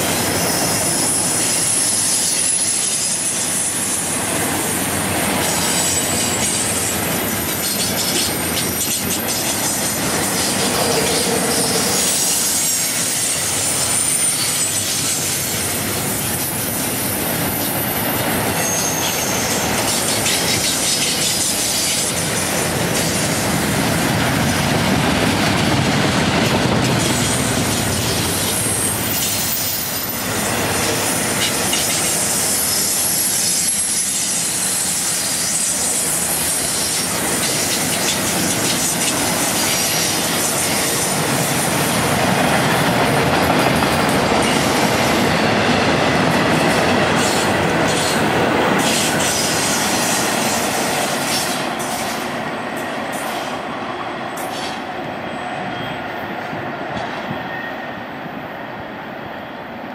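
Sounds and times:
train wheels rumbling on rails: 0.0 - 59.9
high-pitched wheel squeals: 0.2 - 3.8, 5.6 - 15.3, 17.5 - 21.7.

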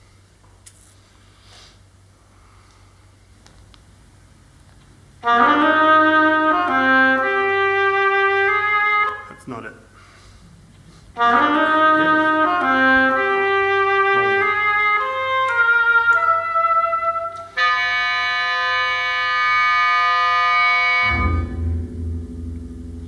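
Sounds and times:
instrumental music chords: 5.2 - 9.4, 11.2 - 23.0.

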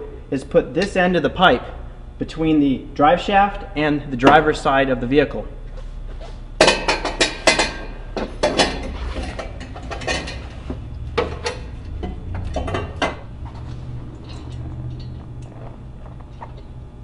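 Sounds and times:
low steady hum: 0.0 - 17.0
metal pipe clanking and scraping: 6.6 - 16.8.

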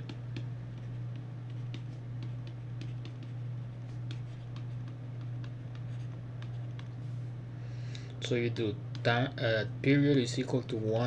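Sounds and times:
stylus tapping on tablet screen: 0.0 - 6.9
steady low hum: 0.0 - 11.0.

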